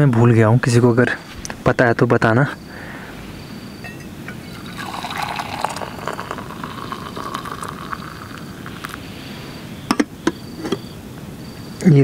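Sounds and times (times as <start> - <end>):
kettle clinking on stove: 3.8 - 9.0
tea pouring into mug: 3.9 - 9.1.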